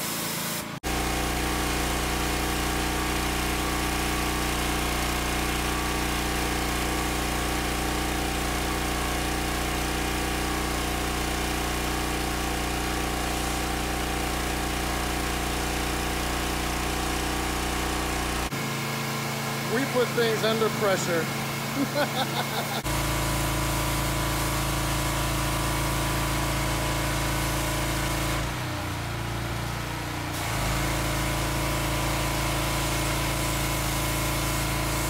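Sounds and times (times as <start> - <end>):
water jet spraying on screen: 0.0 - 7.6, 19.7 - 22.9, 30.4 - 35.0
pressure washer engine running: 0.0 - 35.0.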